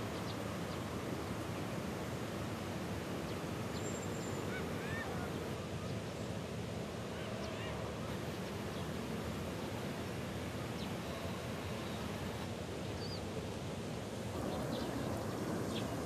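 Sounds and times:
outdoor background noise: 0.0 - 16.0
faint short bird calls: 3.8 - 5.4.

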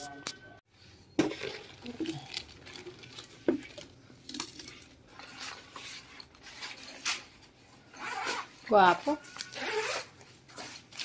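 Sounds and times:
plastic bag crinkling: 1.3 - 6.9.

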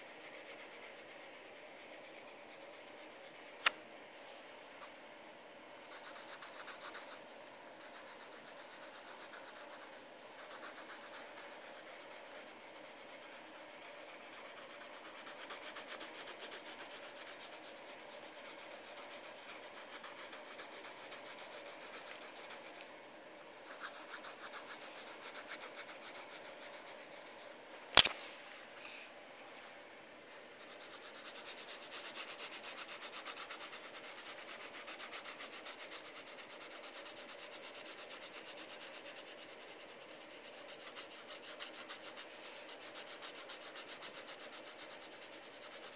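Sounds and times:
pencil scratching on paper: 0.0 - 3.7, 5.8 - 22.8, 23.6 - 27.5, 30.6 - 45.9
sharp click: 27.9 - 28.2.

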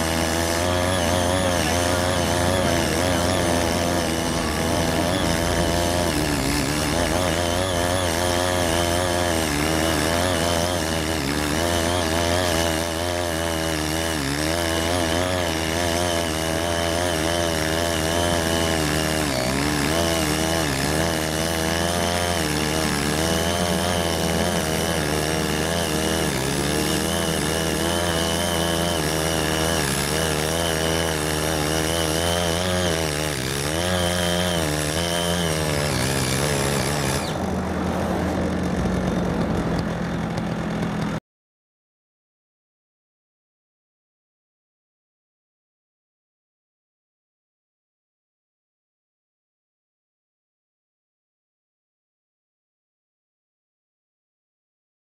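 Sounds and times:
tiller engine tilling soil: 0.0 - 41.2.

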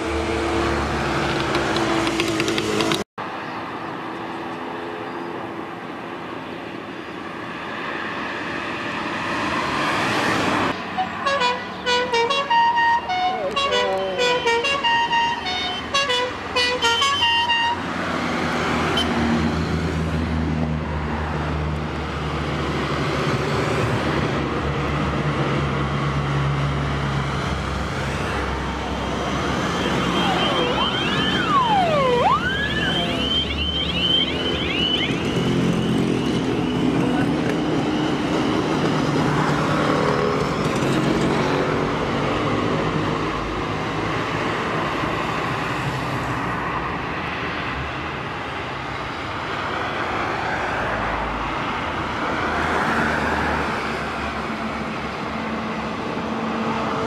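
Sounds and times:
engine and road noise: 0.0 - 57.0
high gliding tone: 29.8 - 35.0.

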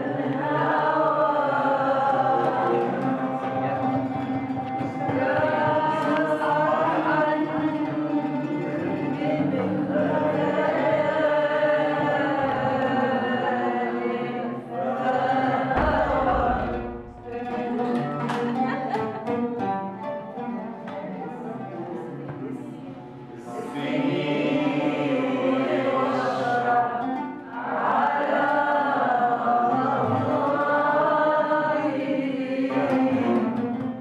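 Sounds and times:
voices singing together: 0.0 - 19.6, 20.8 - 34.0
ouds plucked: 15.6 - 18.0.

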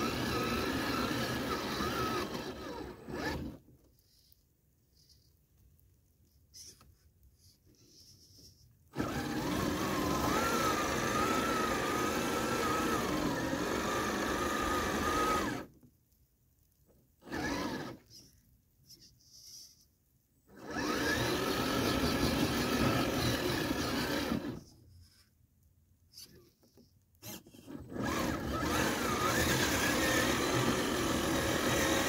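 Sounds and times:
plow pushing through snow: 0.0 - 3.6, 8.9 - 15.7, 17.2 - 18.0, 20.5 - 24.7, 27.2 - 32.0
rc car electric motor whining: 0.0 - 3.6, 8.9 - 15.7, 17.2 - 18.1, 20.5 - 24.7, 27.2 - 32.0.

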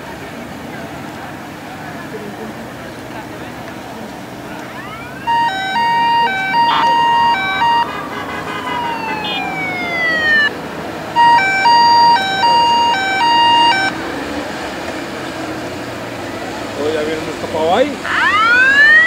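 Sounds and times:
background murmur: 0.0 - 19.0
siren gliding down: 4.6 - 14.0, 18.0 - 19.0
two-tone siren: 4.7 - 14.0, 18.0 - 19.0.

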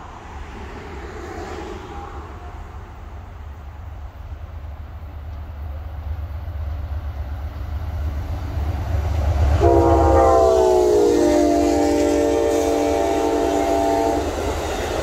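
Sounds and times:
train rumble: 0.0 - 15.0
locomotive air horn chord: 9.6 - 14.6.

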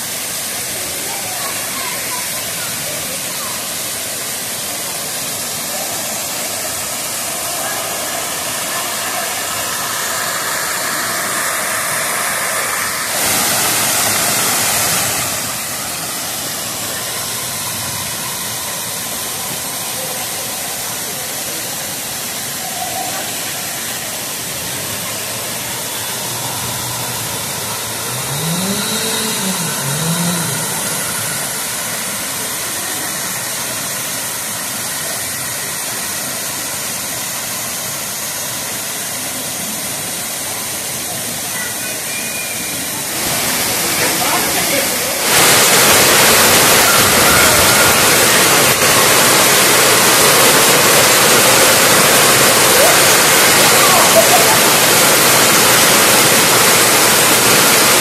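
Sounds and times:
waterfall rushing: 0.0 - 58.0
short rising and falling sound: 26.1 - 32.5.

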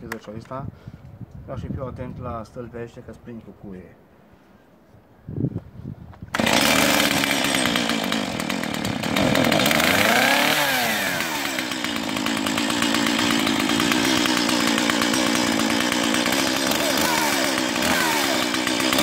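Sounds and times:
chainsaw engine revving: 6.3 - 19.0.

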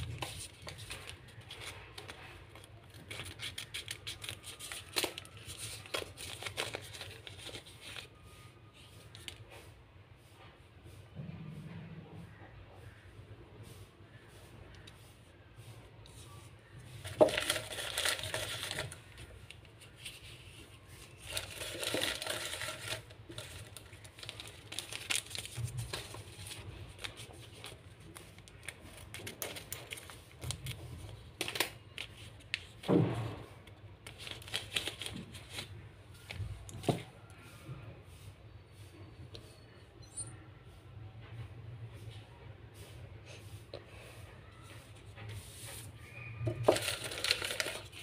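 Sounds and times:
scissors cutting paper: 0.0 - 7.8
paper rustling and crinkling: 0.0 - 9.7, 16.0 - 37.3, 44.6 - 48.0.

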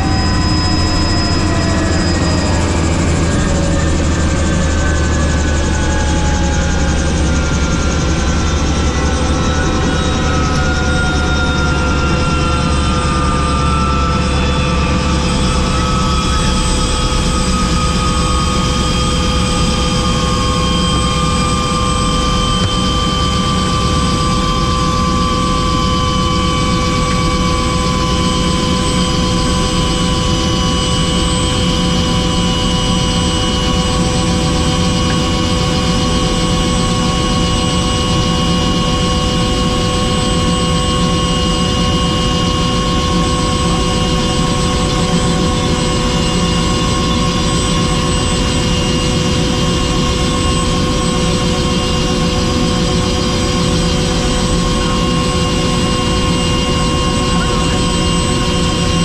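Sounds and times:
helicopter engine and rotor: 0.0 - 59.0.

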